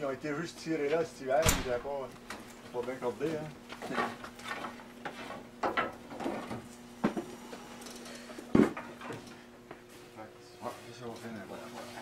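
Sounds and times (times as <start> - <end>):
heavy wood thump: 1.4 - 2.0.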